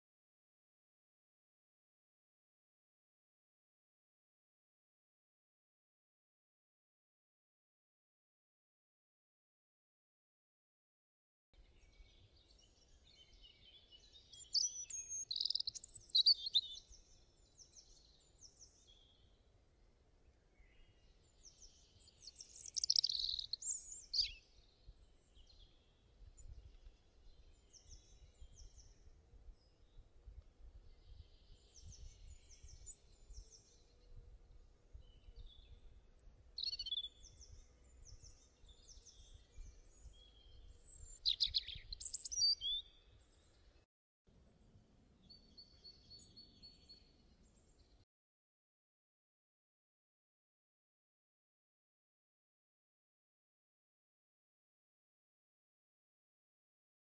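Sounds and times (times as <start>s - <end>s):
small birds chirping: 11.6s - 19.4s, 20.2s - 43.8s, 45.2s - 48.0s.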